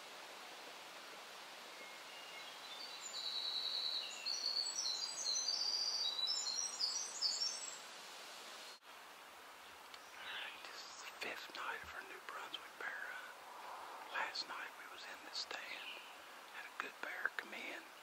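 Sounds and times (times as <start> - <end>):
steady outdoor hiss: 0.0 - 18.0
songbird singing: 1.0 - 7.9, 8.6 - 18.0.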